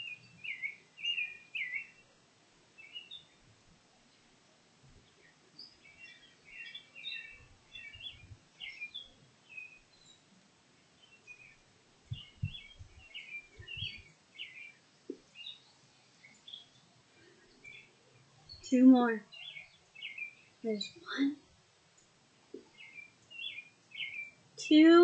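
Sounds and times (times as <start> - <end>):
songbirds chirping: 0.0 - 25.0
soft low thuds: 12.0 - 14.1.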